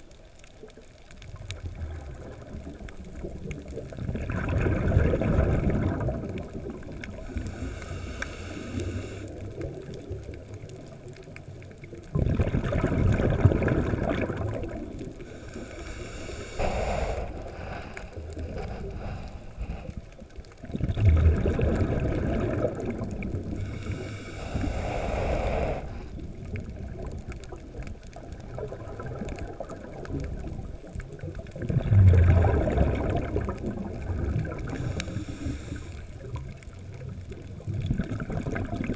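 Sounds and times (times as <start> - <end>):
exhaled bubbles gurgling: 0.0 - 38.9
diver inhaling through regulator: 7.1 - 9.4, 15.2 - 20.3, 23.5 - 26.4, 34.5 - 36.3.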